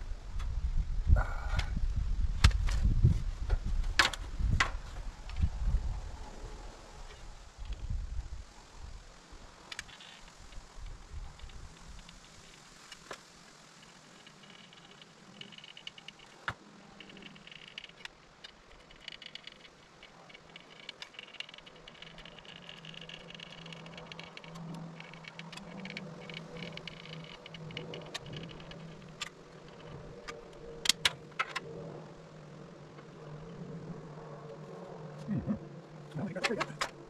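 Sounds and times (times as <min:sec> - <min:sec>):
steady low hum: 0:13.8 - 0:37.0.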